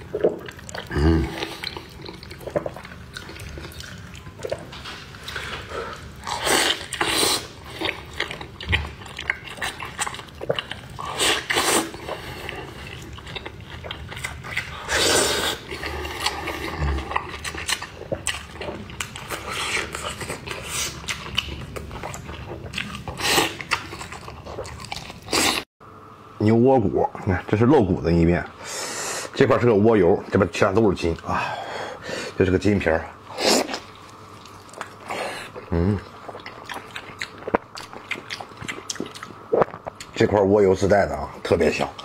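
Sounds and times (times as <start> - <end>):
wet chewing and smacking: 0.0 - 25.7, 33.6 - 40.3.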